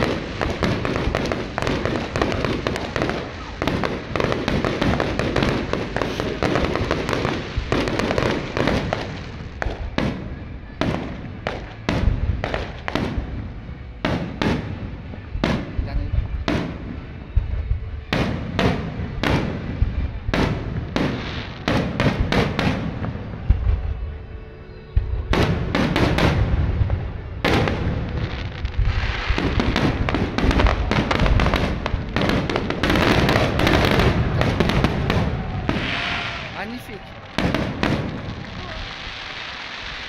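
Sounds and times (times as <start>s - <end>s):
firework shells bursting: 0.0s - 10.2s
firework crackling: 0.0s - 40.0s.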